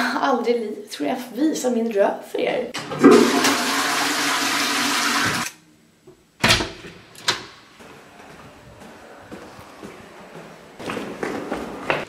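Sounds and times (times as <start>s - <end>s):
toilet flushing: 2.8s - 5.5s.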